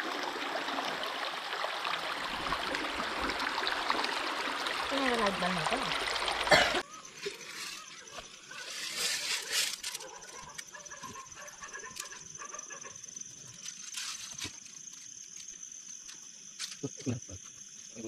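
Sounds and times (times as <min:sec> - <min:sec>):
insect high-pitched trill: 0:06.5 - 0:18.0.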